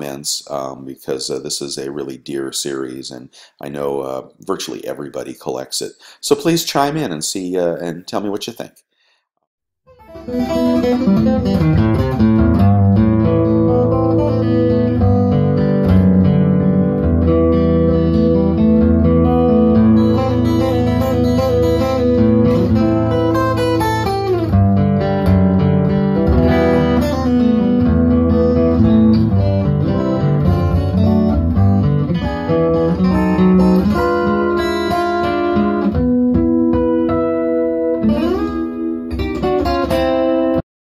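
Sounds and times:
acoustic guitar chords: 0:09.9 - 0:40.6.

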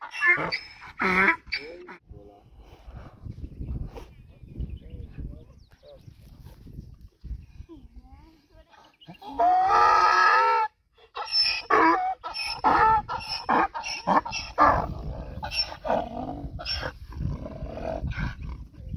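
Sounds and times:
donkey braying: 0:00.0 - 0:02.0, 0:09.1 - 0:17.0.

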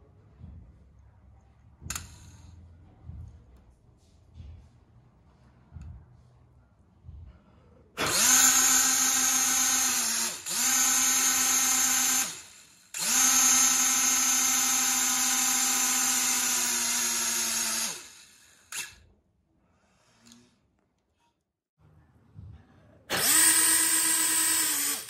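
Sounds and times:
toy drone motors buzzing whine: 0:08.0 - 0:19.0, 0:23.1 - 0:25.0.

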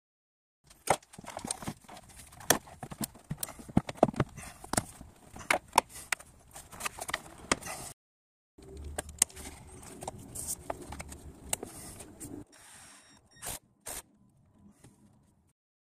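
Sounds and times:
plastic rubbing and rustling: 0:00.7 - 0:07.8, 0:09.2 - 0:12.4.

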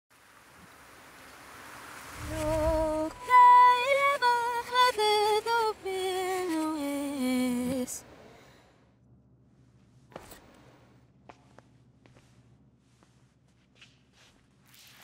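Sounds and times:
low rumble: 0:02.1 - 0:03.3
woman singing: 0:02.2 - 0:08.0.

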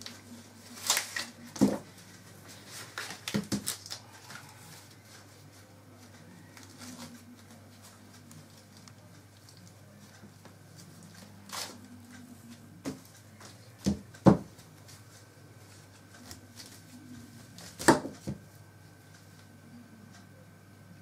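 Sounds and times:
corn husks rustling and tearing: 0:00.0 - 0:13.7.

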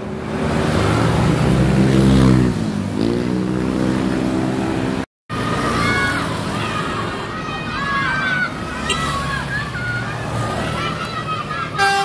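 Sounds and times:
bus engine passing close: 0:00.0 - 0:12.0
children's voices: 0:05.4 - 0:12.0.

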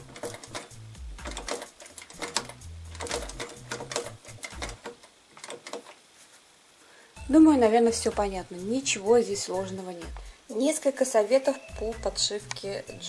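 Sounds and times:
sewing machine stitching: 0:00.0 - 0:06.0.

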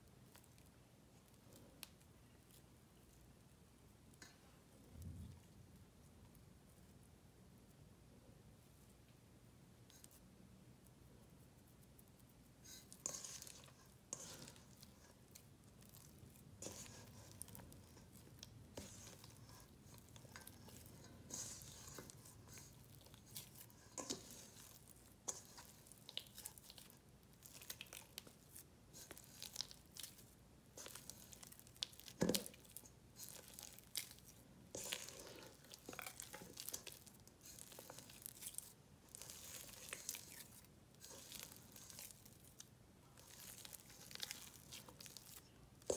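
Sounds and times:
dough squelching by hand: 0:11.2 - 0:45.9.

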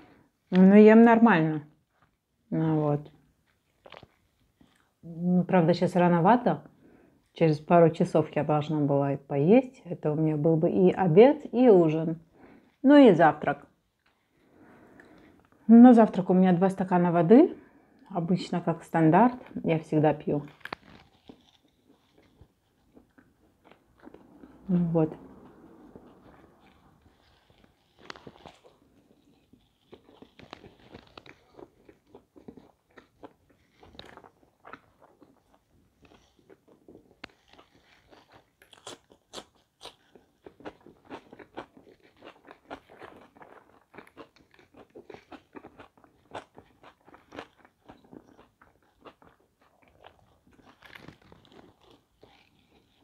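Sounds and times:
person chewing crunchy crust: 0:01.8 - 0:05.1, 0:13.6 - 0:15.6, 0:18.9 - 0:53.0.

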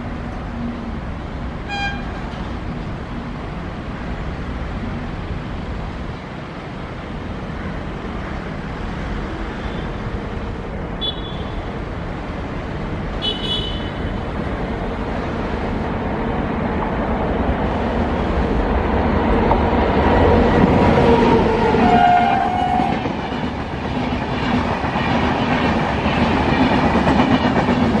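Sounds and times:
road traffic noise: 0:00.0 - 0:28.0
train rumbling: 0:00.0 - 0:28.0
short high train horn toot: 0:01.7 - 0:02.4, 0:11.0 - 0:11.6, 0:21.8 - 0:23.0.

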